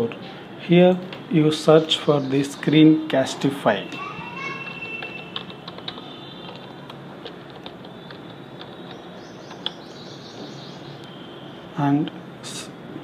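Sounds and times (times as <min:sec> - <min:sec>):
steady background hiss: 0:00.0 - 0:04.5, 0:05.4 - 0:13.0
keyboard keys clicking: 0:04.6 - 0:09.8.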